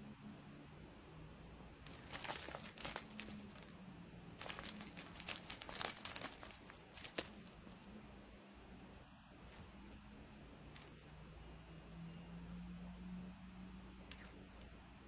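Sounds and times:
plush toy rustling and crinkling: 0:01.9 - 0:03.8, 0:04.4 - 0:07.9.

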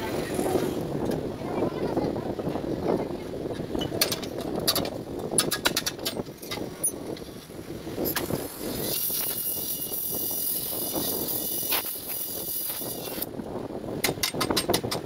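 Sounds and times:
gas welding torch hissing: 0:08.0 - 0:13.3.

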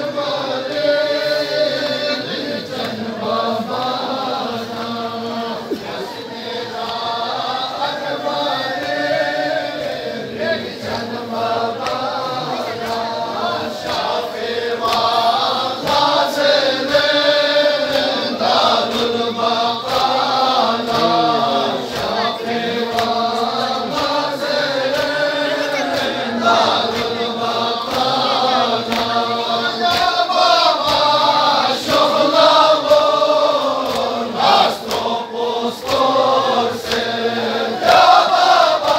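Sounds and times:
men singing in chorus: 0:00.0 - 0:38.9
rhythmic hand slaps on chests: 0:00.1 - 0:38.9
man chanting a lament: 0:19.6 - 0:23.8.

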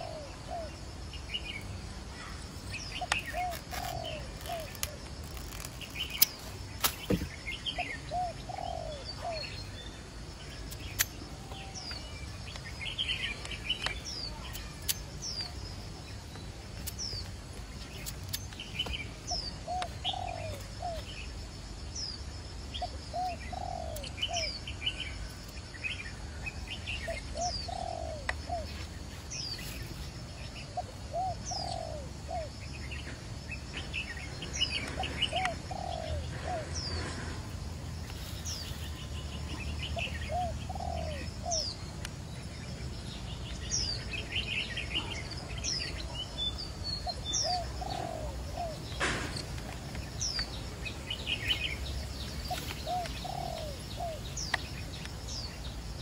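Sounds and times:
dove cooing: 0:00.0 - 0:00.8, 0:07.8 - 0:09.4, 0:19.6 - 0:21.0, 0:22.8 - 0:24.5, 0:27.1 - 0:28.7, 0:30.7 - 0:32.5, 0:34.9 - 0:37.4, 0:40.0 - 0:41.7, 0:47.0 - 0:49.2, 0:52.5 - 0:54.3
small birds chirping: 0:00.0 - 0:56.0.

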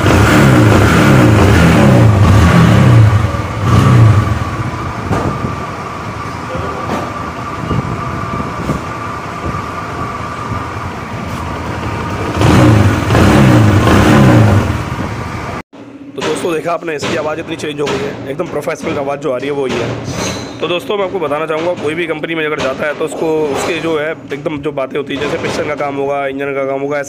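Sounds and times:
motorcycle engine revving and idling: 0:00.0 - 0:15.6.

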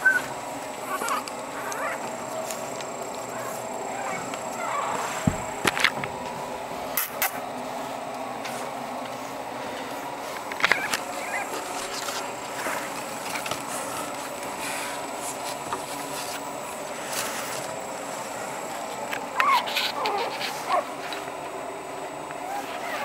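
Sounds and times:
puppies whining and squeaking: 0:00.0 - 0:05.5, 0:10.6 - 0:12.2, 0:19.3 - 0:21.2, 0:22.4 - 0:23.0
steady background hiss: 0:00.0 - 0:23.0.

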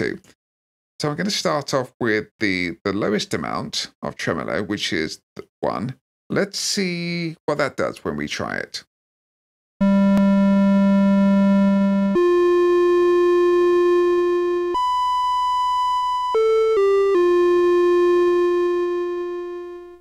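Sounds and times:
synthesizer notes with tremolo: 0:09.8 - 0:20.0.

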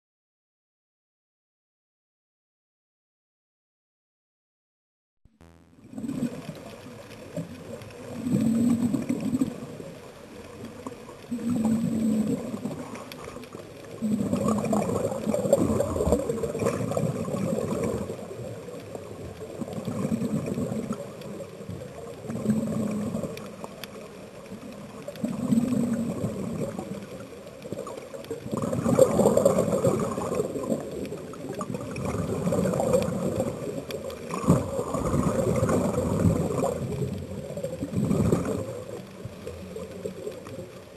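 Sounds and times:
exhaled bubbles gurgling: 0:05.7 - 0:40.9
regulator breathing underwater: 0:08.2 - 0:09.7, 0:11.3 - 0:12.9, 0:14.0 - 0:15.0.

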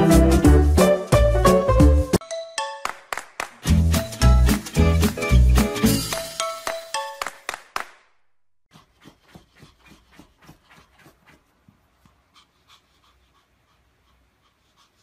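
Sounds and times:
dog panting: 0:08.7 - 0:15.0.

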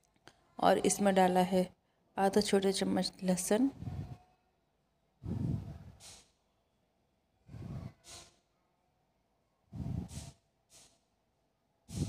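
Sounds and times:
person breathing heavily: 0:05.2 - 0:06.2, 0:07.4 - 0:08.3, 0:09.7 - 0:10.4.

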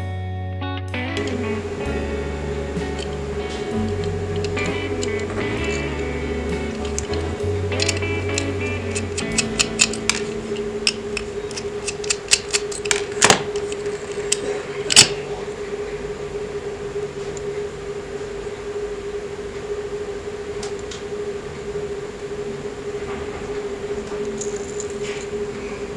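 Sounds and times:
steady hum: 0:00.9 - 0:25.9
metallic clicks on toy car: 0:07.8 - 0:13.0.

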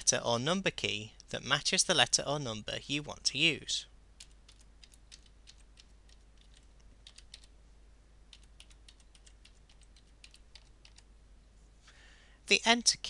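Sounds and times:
keyboard keys clicking: 0:04.2 - 0:07.5, 0:08.3 - 0:11.1.

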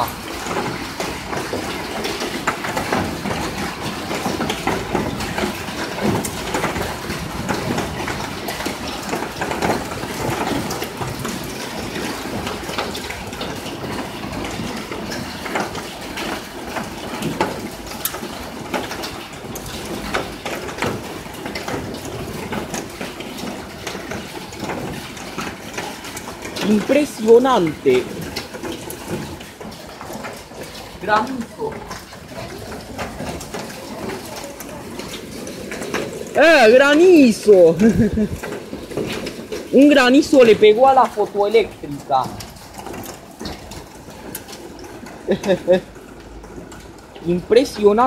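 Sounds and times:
hailstones ticking on hard surfaces: 0:00.0 - 0:48.0
heavy rain: 0:00.0 - 0:48.0.

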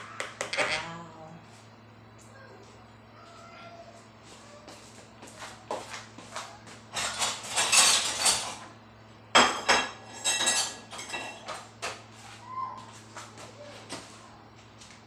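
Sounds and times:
dishes and cutlery clattering: 0:06.9 - 0:08.7, 0:09.4 - 0:11.6.

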